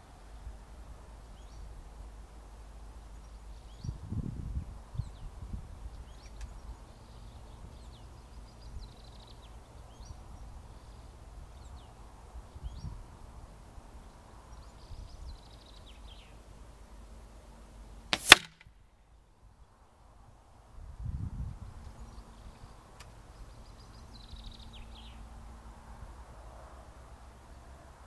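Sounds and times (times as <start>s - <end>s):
small birds chirping: 1.3s - 1.8s, 3.0s - 4.1s, 4.9s - 13.1s, 14.0s - 16.5s, 21.8s - 25.3s.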